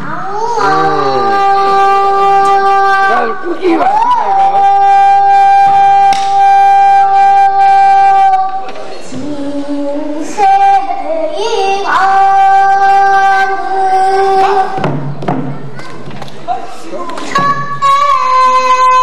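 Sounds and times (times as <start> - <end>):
girl singing held high notes: 0.0 - 3.4.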